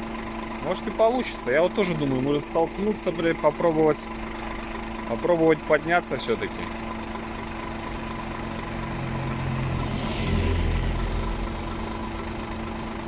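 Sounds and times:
truck diesel engine idling: 0:00.0 - 0:13.0
van driving past: 0:06.8 - 0:13.0.

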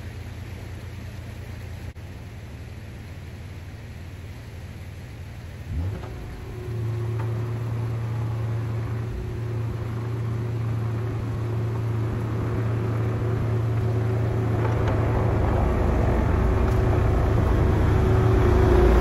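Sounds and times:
low rumble: 0:05.7 - 0:19.0
motor humming: 0:06.0 - 0:19.0.

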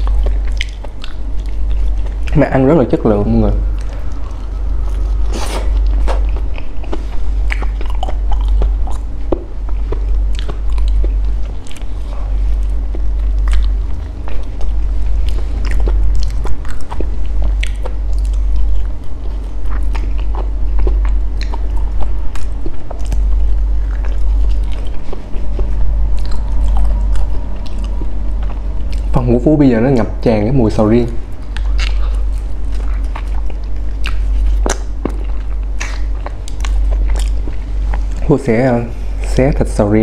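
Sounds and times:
wet chewing and lip-smacking: 0:00.0 - 0:30.2, 0:31.0 - 0:38.7
low hum: 0:00.0 - 0:40.0.

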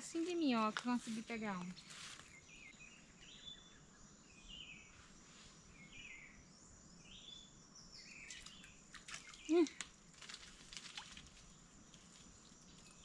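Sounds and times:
faint high-pitched bird song: 0:01.2 - 0:09.9.

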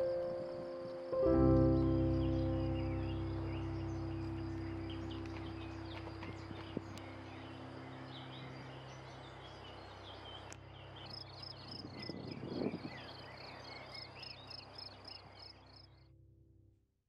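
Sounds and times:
birds chirping: 0:00.0 - 0:16.0
high rapid bird chirp: 0:02.2 - 0:15.9.

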